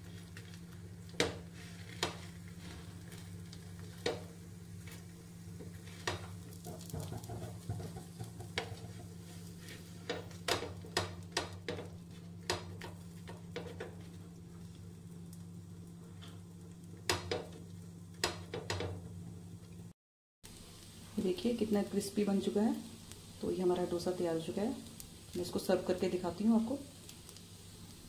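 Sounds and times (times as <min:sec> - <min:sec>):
metal spatula tapping and scraping: 0:05.9 - 0:14.0.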